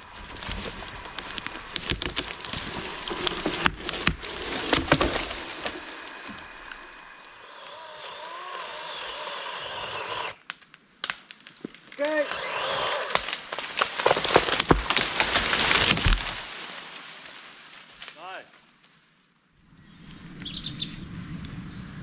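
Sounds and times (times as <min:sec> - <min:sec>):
branches snapping: 0:00.0 - 0:19.0
tree wood cracking and splintering: 0:00.0 - 0:19.0
rustling branches: 0:00.0 - 0:21.6.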